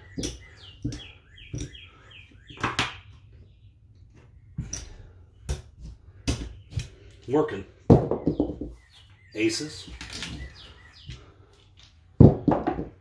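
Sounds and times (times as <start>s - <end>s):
small bird chirping: 0.0s - 5.5s, 6.4s - 11.8s.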